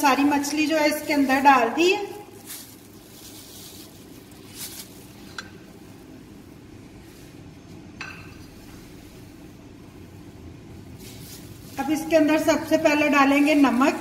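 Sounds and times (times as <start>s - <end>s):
low background hum: 0.0s - 14.0s
faint rustles: 2.3s - 6.1s.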